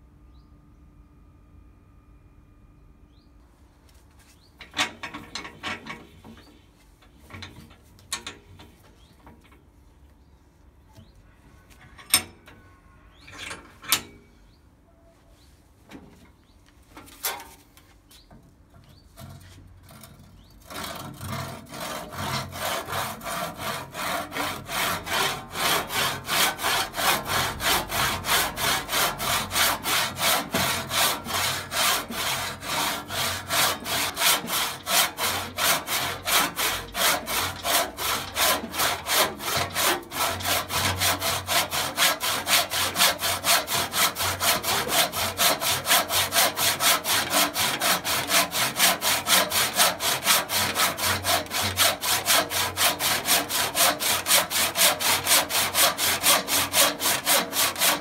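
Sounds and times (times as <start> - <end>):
hand saw cutting wood: 19.2 - 58.0.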